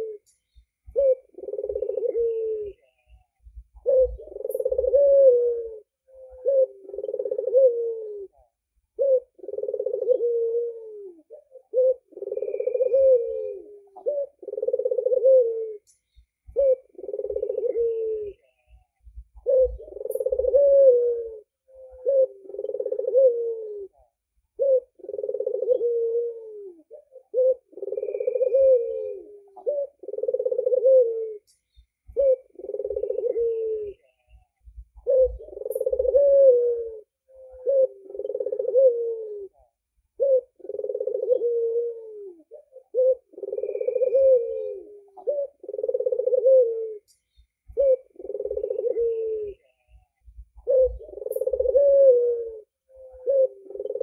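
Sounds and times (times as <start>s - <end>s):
dove cooing: 0.0s - 54.0s.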